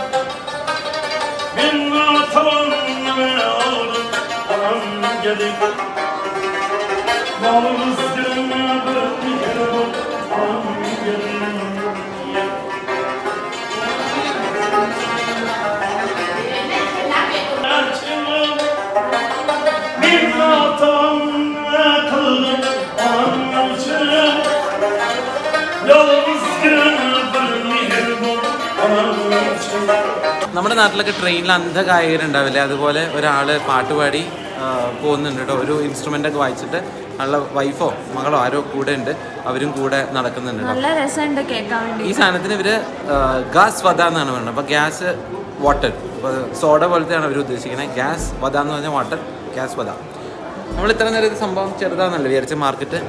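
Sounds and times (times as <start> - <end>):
stringed instrument folk melody: 0.0 - 53.0.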